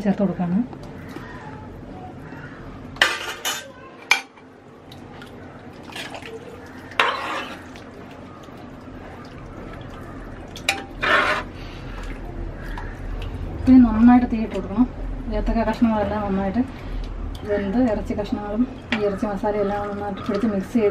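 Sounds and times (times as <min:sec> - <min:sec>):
ladle scraping metal pot: 0:06.8 - 0:07.8, 0:10.6 - 0:11.7.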